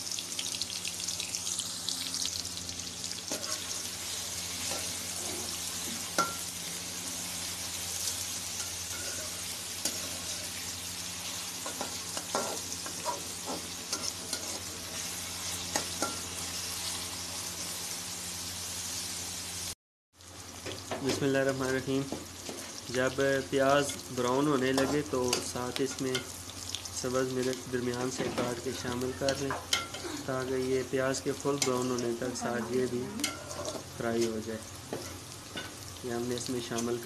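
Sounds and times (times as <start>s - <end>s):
onions sizzling in oil: 0.0s - 37.0s.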